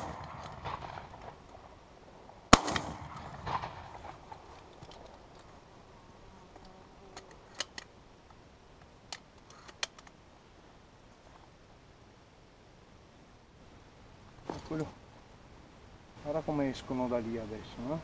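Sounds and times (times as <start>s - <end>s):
shotgun shot with echo: 2.5s - 4.2s
shotgun handling clicks: 6.6s - 7.9s, 8.8s - 10.2s.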